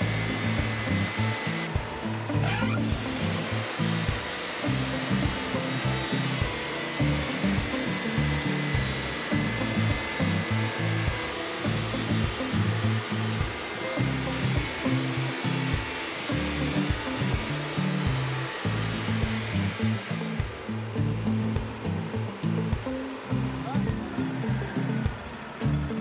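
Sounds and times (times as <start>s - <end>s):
bandsaw mill sawing log: 0.0s - 21.9s
background music with bass line: 0.0s - 26.0s.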